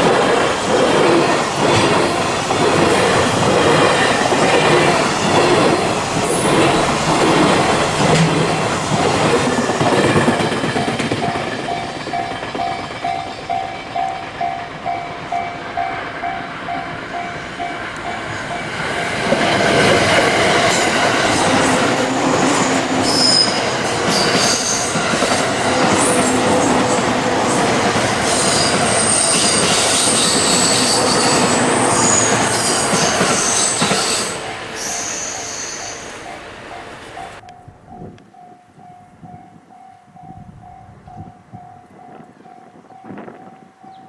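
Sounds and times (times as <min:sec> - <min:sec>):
electric train passing: 0:00.0 - 0:44.0
wheel squeals: 0:20.6 - 0:26.9, 0:28.2 - 0:36.1.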